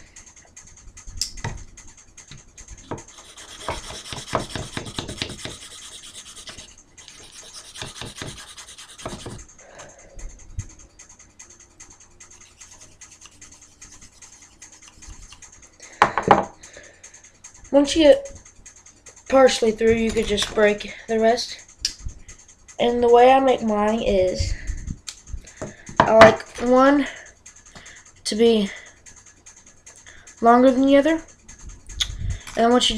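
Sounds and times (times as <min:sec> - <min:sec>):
knife scraping bamboo skewer: 0:02.9 - 0:09.4, 0:12.3 - 0:15.6.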